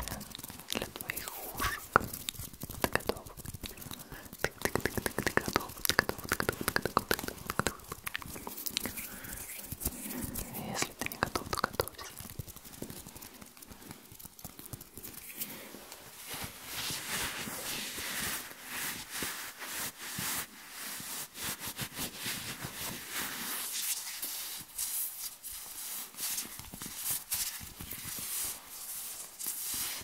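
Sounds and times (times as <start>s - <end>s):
hands rubbing at microphone: 0.0s - 30.0s
crisp little clicks: 0.1s - 13.7s.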